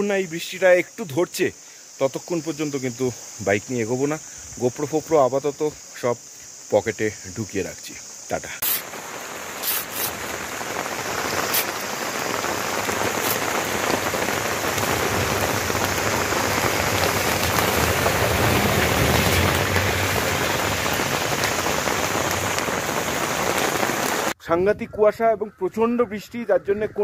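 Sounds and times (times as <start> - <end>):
heavy rain falling: 8.6 - 24.4.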